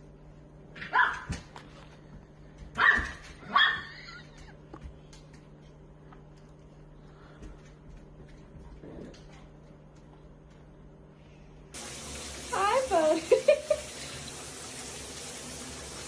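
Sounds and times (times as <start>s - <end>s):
dog barking: 0.8s - 1.3s, 2.8s - 3.9s.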